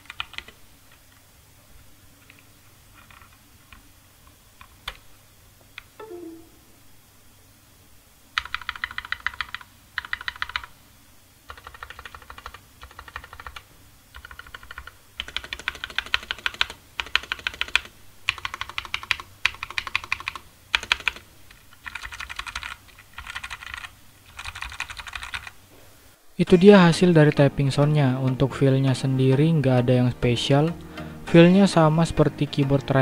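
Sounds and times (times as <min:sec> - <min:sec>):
mechanical keyboard typing: 0:00.0 - 0:00.6, 0:03.0 - 0:03.8, 0:08.4 - 0:10.7, 0:11.5 - 0:25.6.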